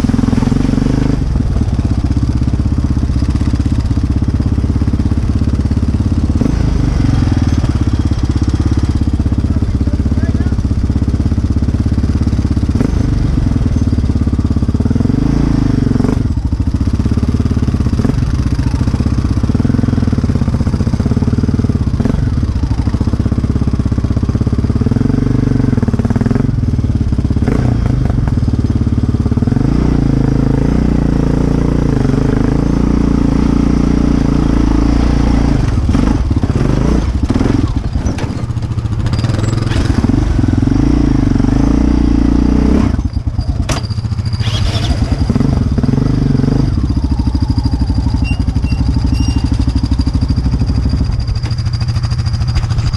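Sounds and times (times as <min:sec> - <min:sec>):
atv engine revving: 0:00.0 - 0:52.9
knocks and rattles over rough ground: 0:27.4 - 0:28.9, 0:35.6 - 0:40.8, 0:42.8 - 0:52.9.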